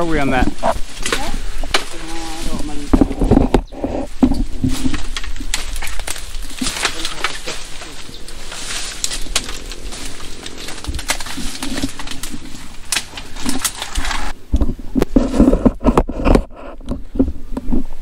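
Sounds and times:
bamboo and brush rustling: 0:00.0 - 0:18.0
undergrowth knocking on microphone: 0:00.4 - 0:13.7.

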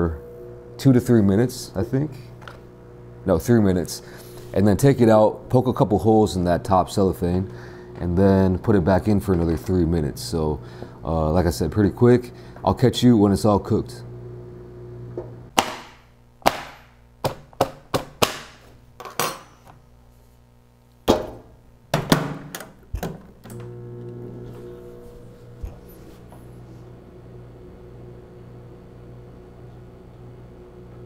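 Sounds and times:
microwave oven humming: 0:00.0 - 0:15.5, 0:22.6 - 0:31.0.

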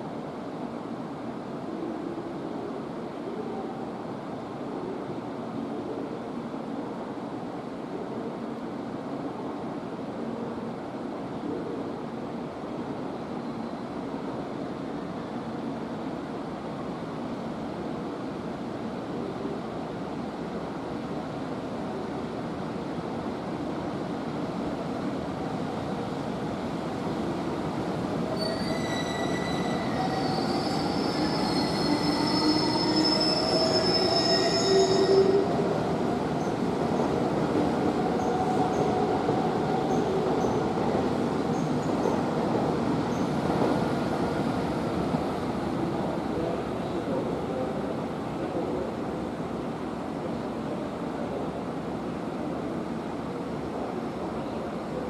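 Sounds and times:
train rumbling past: 0:22.7 - 0:55.0
high metallic wheel squeal: 0:28.4 - 0:35.5.

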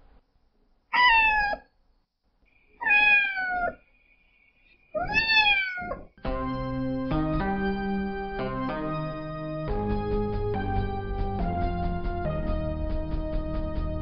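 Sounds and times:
cat meowing: 0:00.9 - 0:01.7, 0:02.8 - 0:03.8, 0:05.0 - 0:06.1
organ music: 0:06.2 - 0:14.0.

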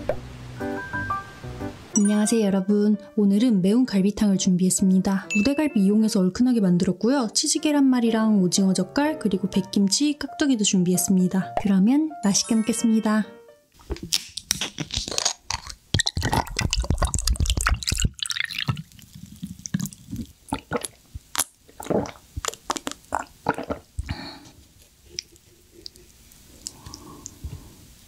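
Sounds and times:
person gulping: 0:14.6 - 0:27.8
liquid pouring into a glass: 0:16.2 - 0:21.0.

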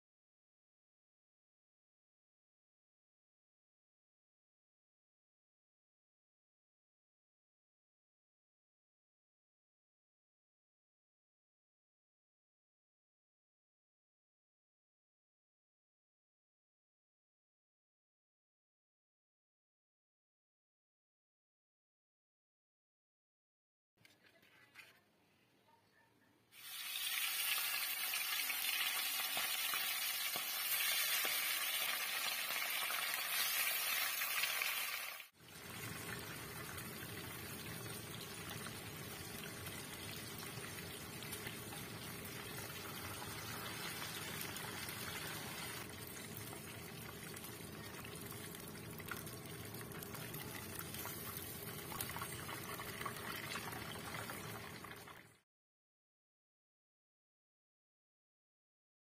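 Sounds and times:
fish frying in oil: 0:26.6 - 0:55.3.

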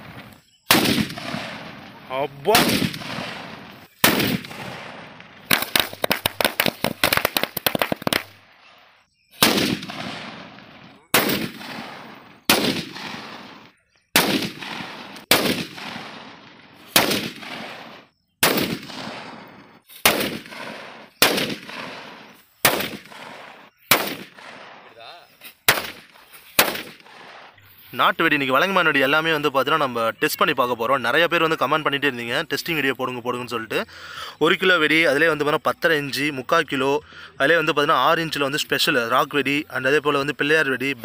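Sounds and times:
loud firecracker bangs with echo: 0:00.0 - 0:08.3, 0:09.3 - 0:25.0, 0:25.6 - 0:27.6
rapid string of firecracker cracks: 0:00.0 - 0:08.4, 0:14.2 - 0:24.8.

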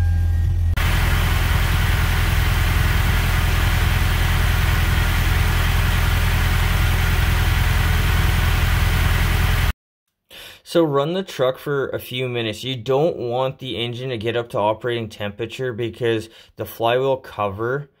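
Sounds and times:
car engine idling: 0:00.5 - 0:09.7.

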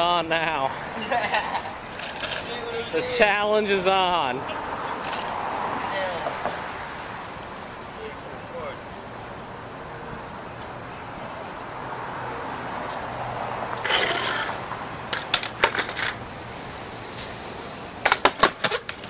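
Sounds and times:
skateboard scraping on pavers: 0:01.9 - 0:03.1, 0:13.7 - 0:16.2, 0:18.1 - 0:19.0
skateboard clacking on ground: 0:02.0 - 0:02.7, 0:13.8 - 0:16.2, 0:18.0 - 0:19.0.

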